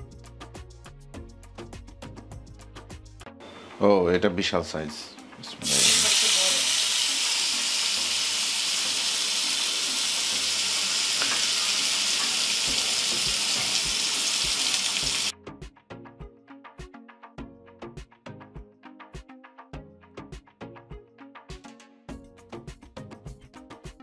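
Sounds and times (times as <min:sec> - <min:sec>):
background music with a beat: 0:00.0 - 0:03.4, 0:12.7 - 0:24.0
meat sizzling in hot oil: 0:05.6 - 0:15.3.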